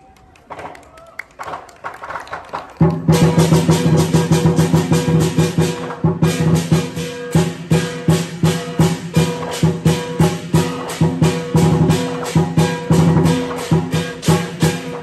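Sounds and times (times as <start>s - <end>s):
big drum beating: 2.8s - 15.0s
clashing cymbals: 3.1s - 15.0s
gong: 3.2s - 15.0s.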